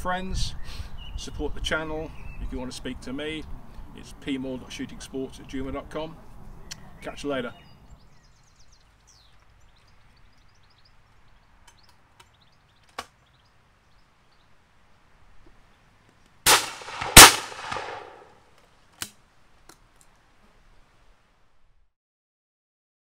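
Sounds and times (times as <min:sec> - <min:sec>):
shotgun shots echoing: 0:16.5 - 0:18.3.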